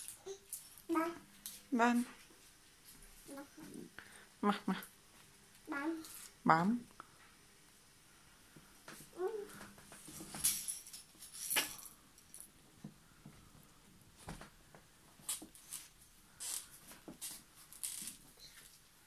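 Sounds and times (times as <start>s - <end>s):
toys rustling and clattering: 9.5s - 12.6s.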